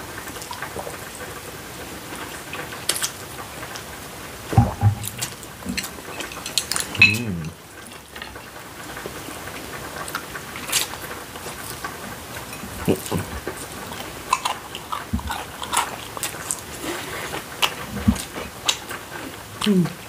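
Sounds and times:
crunching and chewing: 2.1s - 3.9s, 5.0s - 20.0s.

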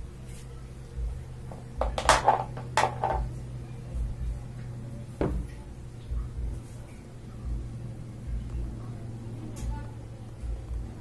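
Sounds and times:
steady low hum: 0.0s - 11.0s
washing machine parts knocking: 1.5s - 3.3s.

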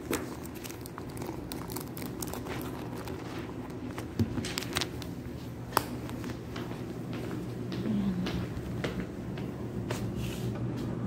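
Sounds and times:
shop interior hum: 0.0s - 11.0s
footsteps: 3.2s - 11.0s.

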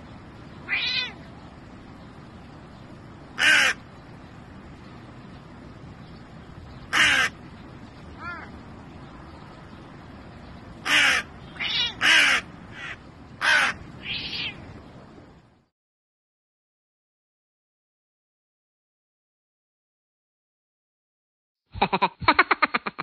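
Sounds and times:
crow cawing: 3.4s - 3.8s, 6.9s - 7.4s, 10.8s - 14.6s.

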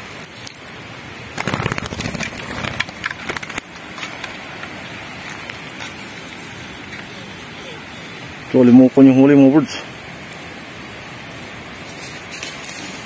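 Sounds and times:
bird wings flapping on straw: 1.3s - 3.8s, 11.8s - 13.0s.

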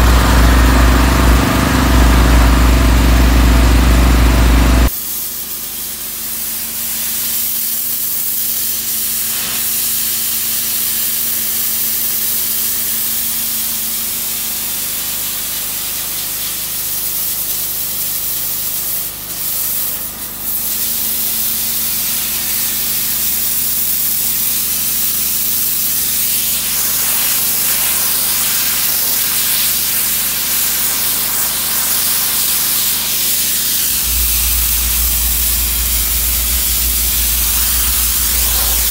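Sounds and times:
low machine hum: 0.0s - 4.9s, 33.6s - 38.9s
steam jet hissing on stone: 4.8s - 38.9s.

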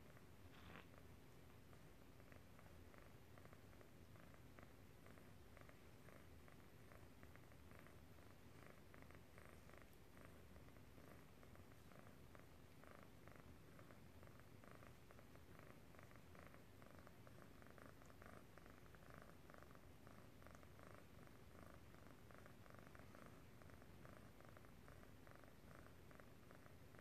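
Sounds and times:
cat purring: 0.0s - 27.0s.

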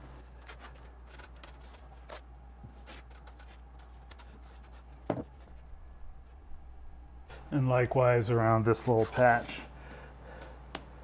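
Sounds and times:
masking tape rustles and ticks: 0.2s - 6.4s.

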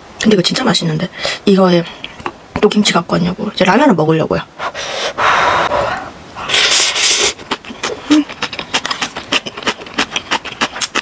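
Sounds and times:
noodles slurped: 5.5s - 11.0s
chewing with mouth clicks: 7.3s - 11.0s.

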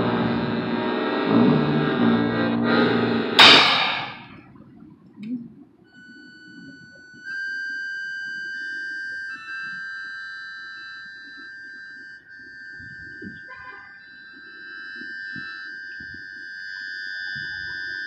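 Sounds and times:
high note held steady: 0.0s - 4.4s
loud crash: 3.4s - 4.4s.

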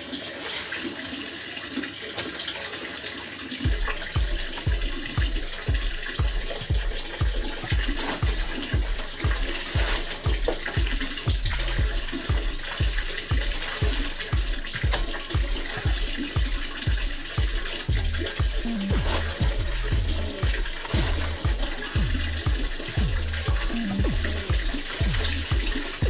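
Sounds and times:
splashing and dripping water: 0.0s - 26.0s
steady low beat: 3.7s - 26.0s
wet fabric rubbing: 3.7s - 26.0s.

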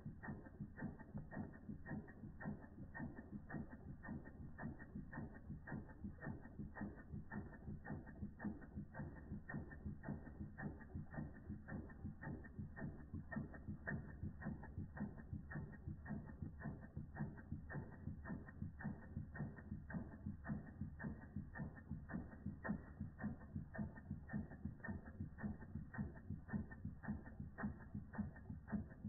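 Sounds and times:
flywheel low rumble: 0.0s - 29.0s
toy steam engine clicking clatter: 0.0s - 29.0s.

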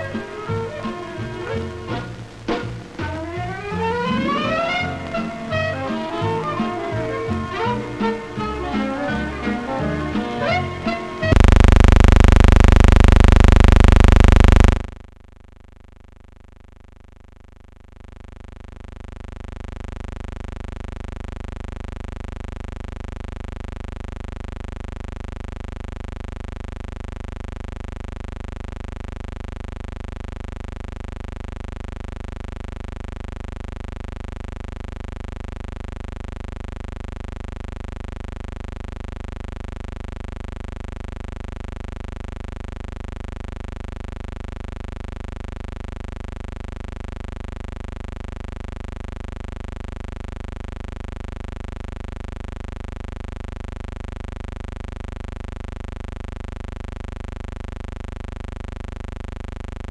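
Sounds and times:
humming drone with overtones: 11.3s - 14.9s.

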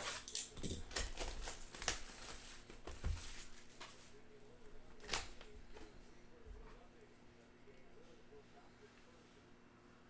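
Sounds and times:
plastic wrapping crinkling and tearing: 0.0s - 4.1s.

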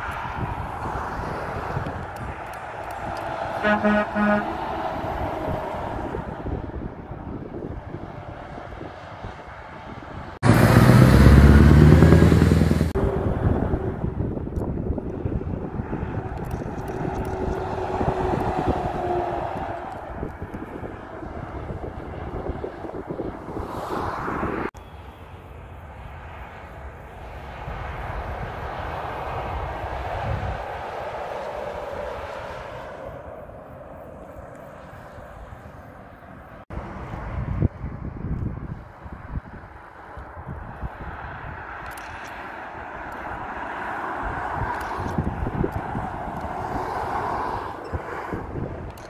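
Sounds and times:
distant motorway traffic rumble: 0.0s - 49.0s
lorry engine and tyre roar: 0.0s - 49.0s
heavy truck engine droning: 2.6s - 23.3s.

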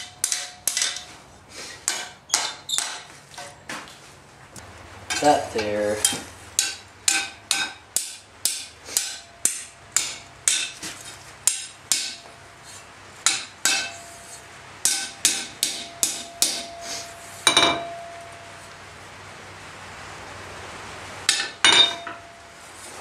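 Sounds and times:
hammer striking iron on anvil: 0.0s - 1.1s, 1.8s - 3.6s, 5.1s - 12.4s, 13.2s - 18.5s, 21.3s - 22.4s.

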